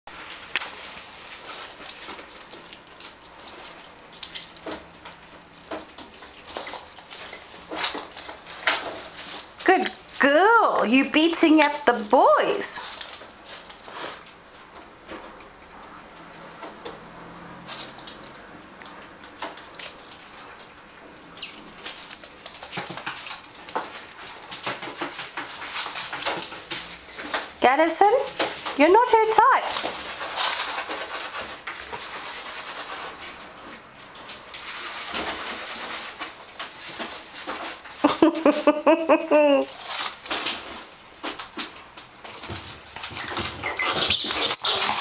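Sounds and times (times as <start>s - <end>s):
animals scuffling on hardwood floor: 0.1s - 38.3s, 39.7s - 45.0s
claws clicking on wooden floor: 17.7s - 27.6s.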